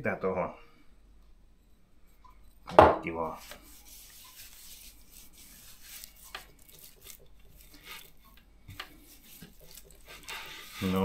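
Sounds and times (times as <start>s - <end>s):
hand rubbing spice into meat: 3.3s - 11.0s.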